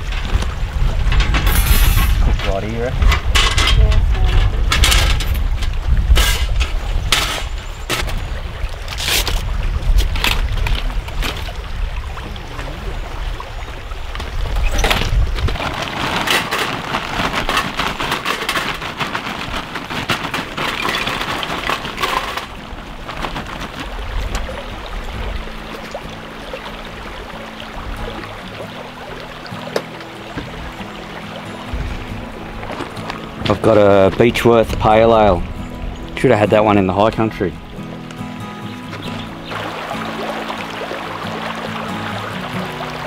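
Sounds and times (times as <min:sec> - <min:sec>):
metal clinks and knocks: 0:01.1 - 0:05.5
charcoal pouring from a bag: 0:15.5 - 0:22.3.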